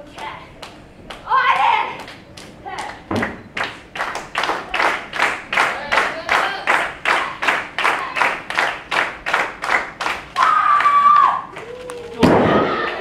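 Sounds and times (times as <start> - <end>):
audience clapping in unison: 0.6 - 12.2
loud high held shout: 10.4 - 13.0.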